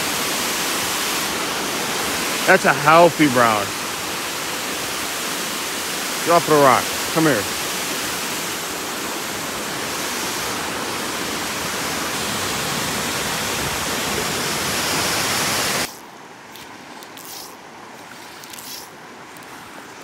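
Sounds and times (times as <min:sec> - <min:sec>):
waterfall pouring into pool: 0:00.0 - 0:14.1
shallow stream: 0:00.0 - 0:20.0.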